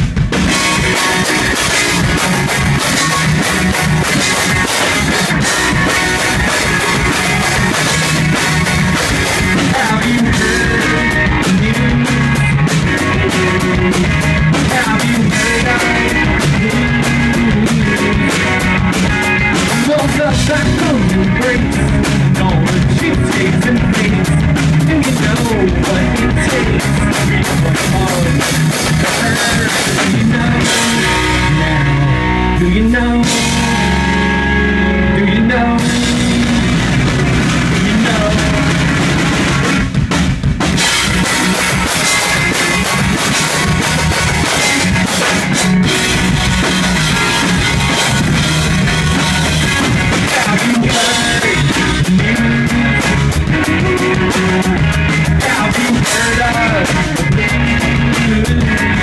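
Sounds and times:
drum kit: 0.0 - 59.0
electric guitars: 0.0 - 59.0.

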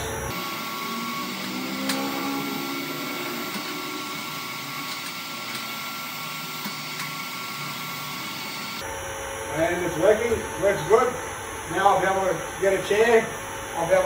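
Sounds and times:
hydraulic power pack running: 0.0 - 8.9.

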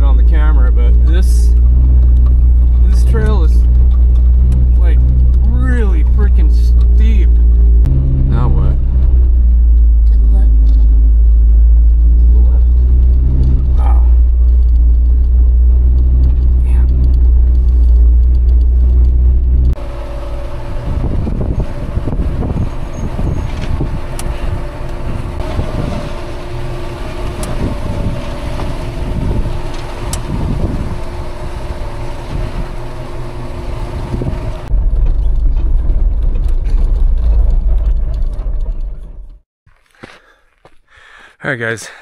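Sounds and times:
heavy low rumble: 0.0 - 39.5
truck engine running: 0.0 - 41.2
tyres crunching over stones: 34.7 - 40.9.

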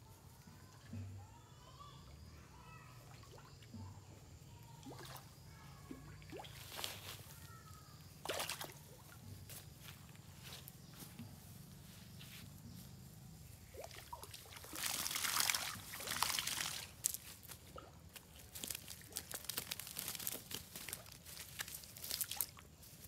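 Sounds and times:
wet net rustling on grass: 6.0 - 23.0
water pouring off a net: 8.2 - 8.8, 13.7 - 17.2, 18.5 - 22.6.

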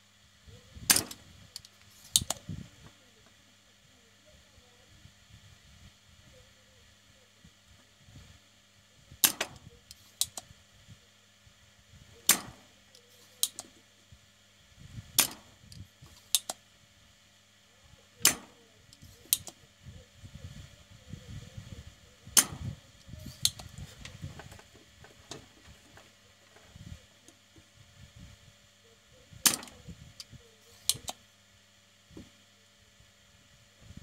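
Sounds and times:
desoldering pump snapping: 0.9 - 2.4, 9.2 - 10.5, 12.3 - 13.7, 15.2 - 16.6, 18.2 - 19.6, 22.4 - 26.2, 29.4 - 31.2
light click: 0.9 - 2.4, 9.2 - 10.5, 12.3 - 13.7, 18.2 - 19.6, 23.3 - 23.7, 29.5 - 31.2.

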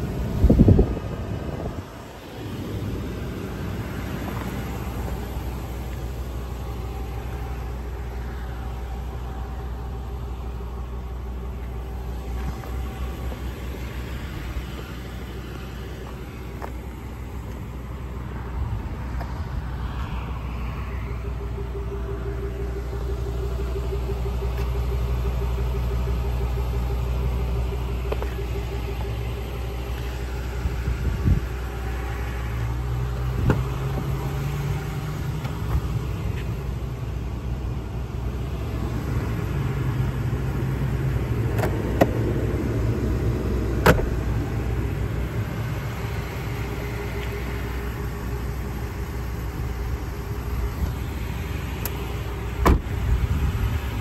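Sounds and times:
engine idling: 0.0 - 54.0
glove box clicking: 41.5 - 42.2.

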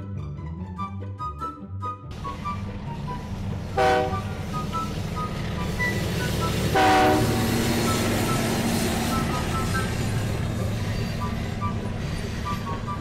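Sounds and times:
moving train rumble: 2.0 - 13.0
train whistle toots: 2.1 - 10.2.

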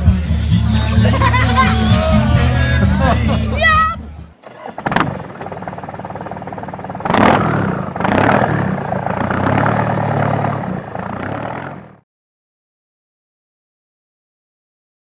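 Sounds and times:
engine starting and revving: 4.4 - 12.0.

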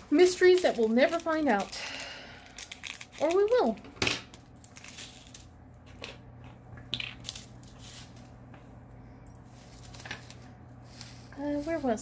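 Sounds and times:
plastic bags rustling: 0.0 - 5.6, 9.5 - 12.0
low steady hum: 0.0 - 12.0.

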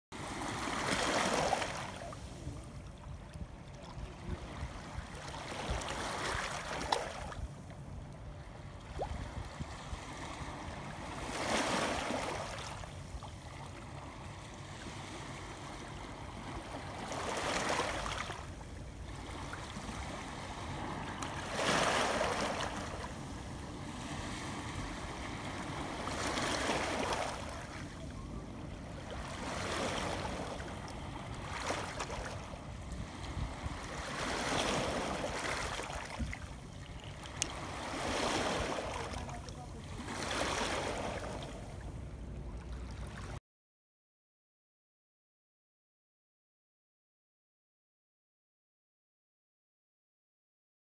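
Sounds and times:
waves washing over pebbles: 19.8 - 27.8, 37.3 - 41.4.

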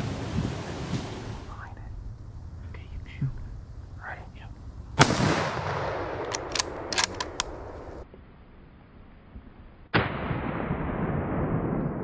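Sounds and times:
rifle shot ringing: 5.0 - 7.8
sharp clicks: 6.2 - 7.6.

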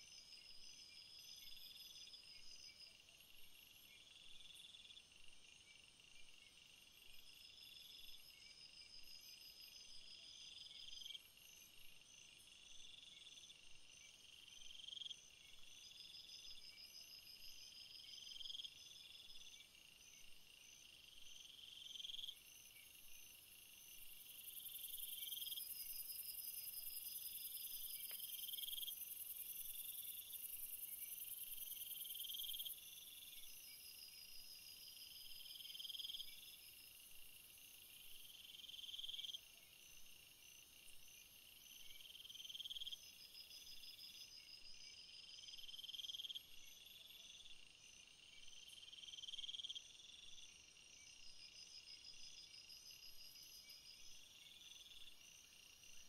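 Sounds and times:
thin pulsing insect trill: 6.4 - 56.0
cricket-like trills: 12.9 - 56.0.

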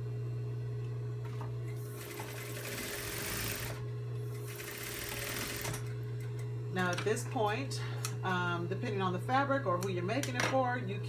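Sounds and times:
steady low hum: 0.0 - 11.0
sewing machine stitching: 1.9 - 3.8, 4.5 - 5.9.

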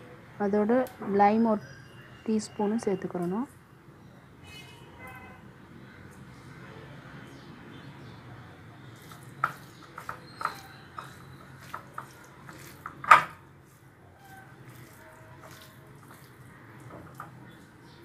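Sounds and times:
hands squishing food in bowl: 8.8 - 18.0
clicks and knocks against bowl: 9.1 - 13.4.

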